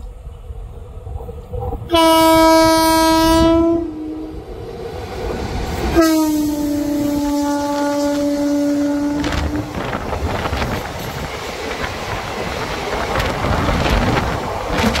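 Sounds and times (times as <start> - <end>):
train rushing past: 0.0 - 15.0
locomotive horn: 1.9 - 4.5, 5.9 - 10.0
wheels clattering over rail joints: 9.3 - 15.0.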